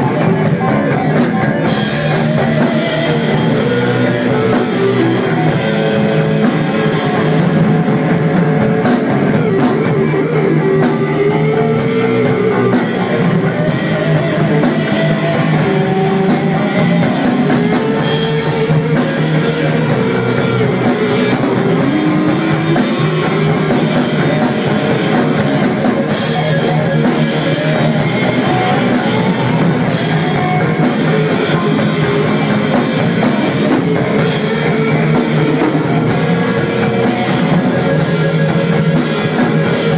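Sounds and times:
rock band playing: 0.0 - 39.9.

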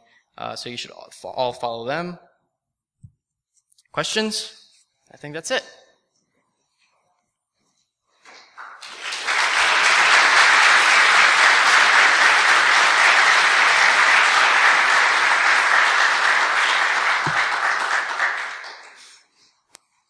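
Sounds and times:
audience applauding: 8.3 - 19.3.

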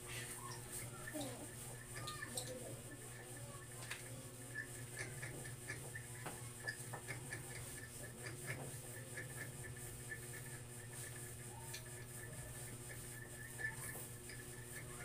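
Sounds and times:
pencils scratching on paper: 0.0 - 15.0.

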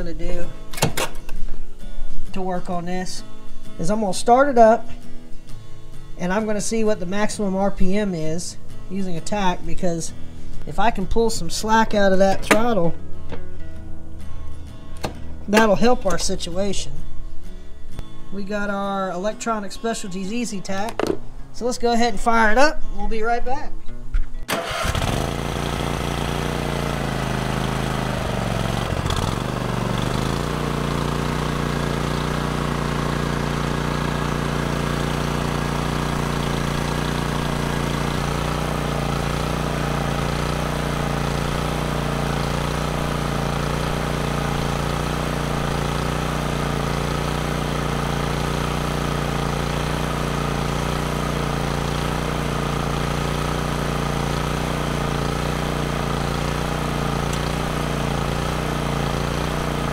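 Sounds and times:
mower engine running: 24.5 - 59.9.

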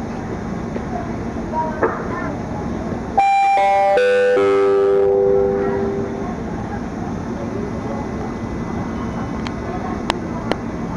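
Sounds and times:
steady background noise: 0.0 - 10.9
public-address chime: 3.2 - 6.5.

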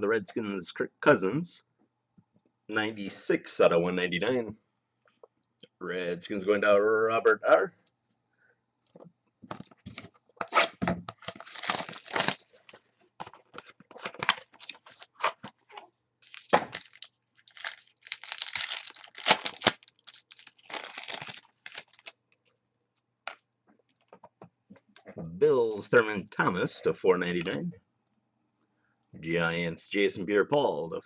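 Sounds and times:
wrapper tearing and crinkling: 11.2 - 12.8, 16.2 - 22.2.

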